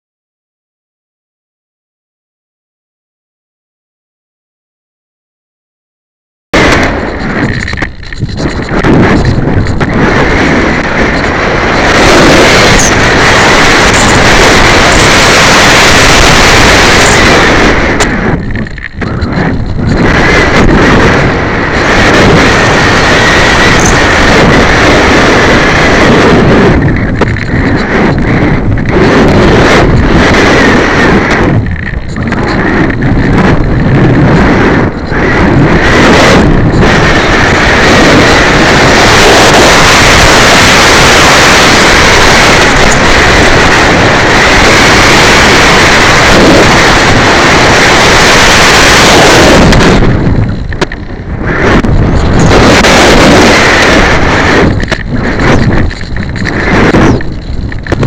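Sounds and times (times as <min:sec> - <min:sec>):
wind buffeting microphone: 0:06.6 - 0:58.0.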